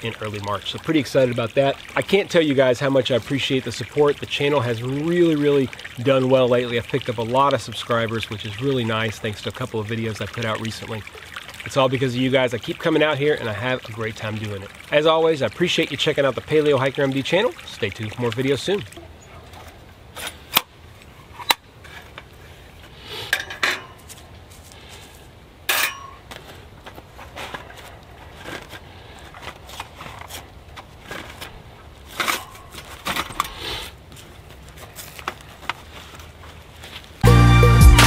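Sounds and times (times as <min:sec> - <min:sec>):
metal grill plates clinking: 0:23.3 - 0:24.0, 0:25.7 - 0:26.2.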